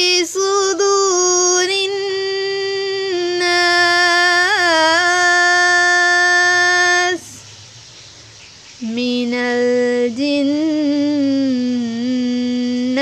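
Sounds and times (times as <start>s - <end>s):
woman chanting recitation: 0.0s - 7.5s, 8.8s - 13.0s.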